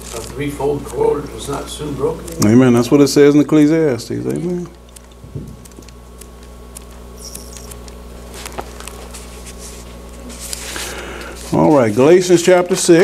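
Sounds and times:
steady low hum: 0.0s - 13.0s
book pages rustling: 6.8s - 13.0s.

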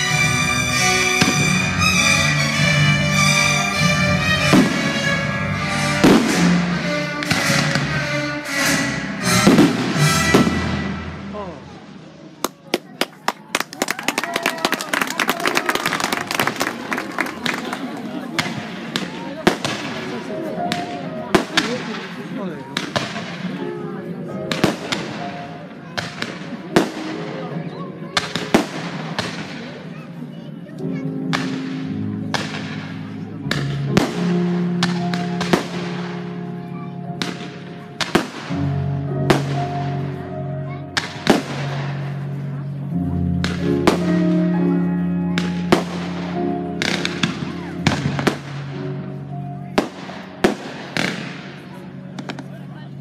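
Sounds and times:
music with long held notes: 0.0s - 12.3s, 16.2s - 53.0s
fireworks bangs: 4.4s - 8.0s, 9.2s - 13.2s, 15.8s - 23.6s, 24.5s - 27.5s, 28.1s - 30.0s, 31.3s - 36.2s, 37.2s - 40.1s, 40.9s - 42.2s, 43.4s - 44.3s, 45.4s - 48.9s, 49.7s - 52.6s.

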